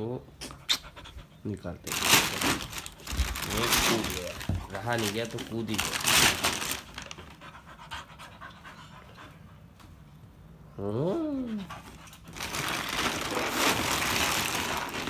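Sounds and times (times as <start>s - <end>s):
plastic liner rustling: 1.9s - 7.4s, 12.2s - 15.0s
dog panting: 6.6s - 9.8s, 11.4s - 12.3s.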